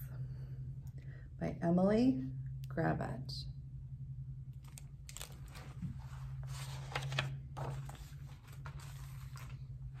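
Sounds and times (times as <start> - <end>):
steady low hum: 0.0 - 10.0
book pages crinkling and rustling: 4.6 - 10.0.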